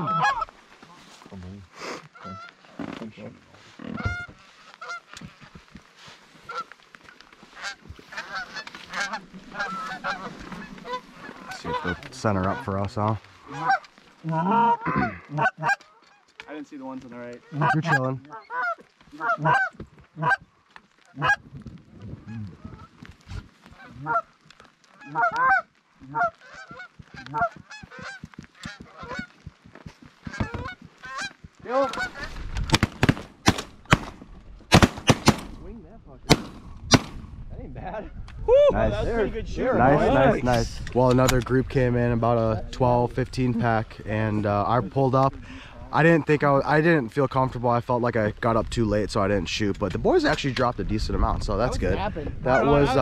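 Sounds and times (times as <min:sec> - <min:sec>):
geese honking: 0:00.0 - 0:01.1, 0:03.8 - 0:05.6, 0:06.4 - 0:06.8, 0:07.4 - 0:16.3, 0:17.4 - 0:21.4, 0:23.7 - 0:29.6, 0:30.2 - 0:32.4.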